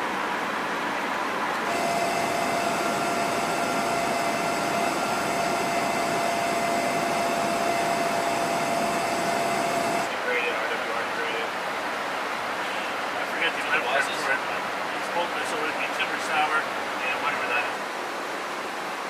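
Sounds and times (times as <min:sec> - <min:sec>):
high jet whine: 0:01.5 - 0:10.8
jet aircraft rushing noise: 0:01.6 - 0:10.2.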